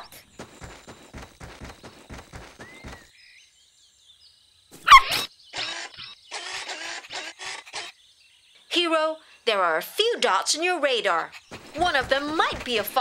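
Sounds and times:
cartoon footstep sound effects: 0.0 - 3.1, 11.5 - 13.0.

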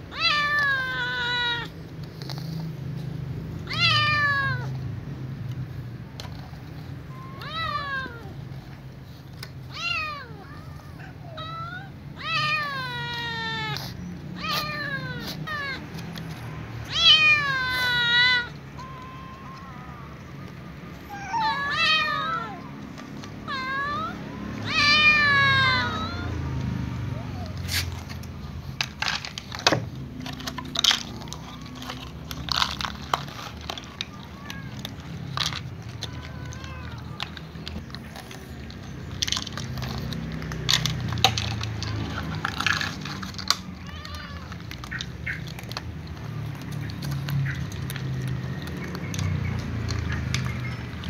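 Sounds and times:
kittens meowing: 0.0 - 4.9, 6.0 - 29.2, 30.2 - 51.0
cats crunching food: 0.0 - 51.0
plastic bag crinkling: 27.7 - 50.5.

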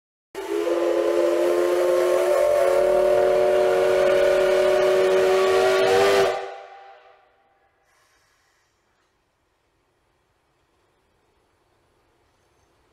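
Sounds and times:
steam locomotive whistle: 0.4 - 8.2.

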